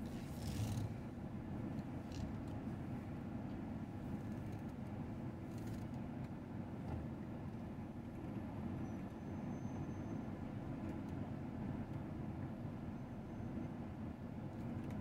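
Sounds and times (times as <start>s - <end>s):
diesel engine rumbling: 0.0s - 4.2s.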